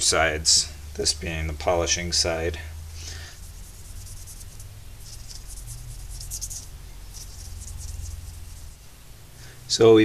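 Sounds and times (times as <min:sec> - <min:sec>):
low steady hum: 0:00.0 - 0:10.0
sandpaper scratching metal: 0:03.0 - 0:08.8.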